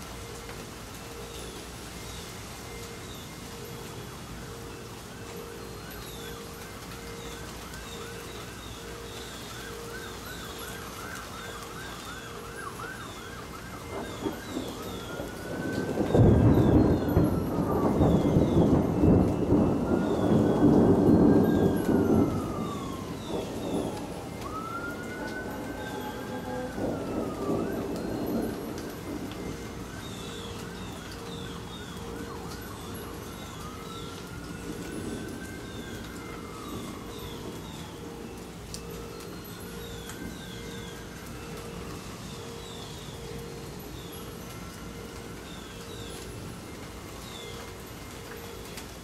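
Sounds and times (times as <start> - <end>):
emergency vehicle siren: 0.0 - 49.0
thunder rumbling: 12.1 - 42.7.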